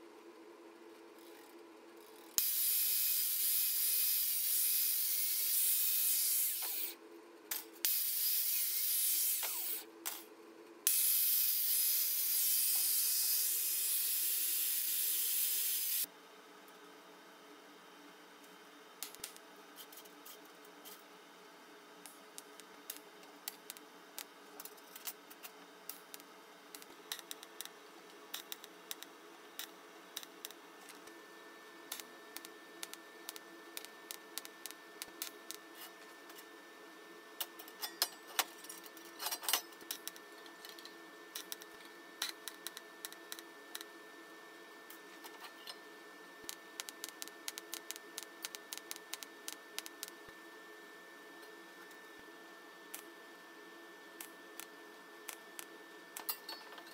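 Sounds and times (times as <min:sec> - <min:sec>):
welding crackling clicks: 0:19.0 - 0:19.4, 0:22.0 - 0:27.7, 0:28.3 - 0:31.1, 0:31.9 - 0:35.6, 0:46.4 - 0:50.2.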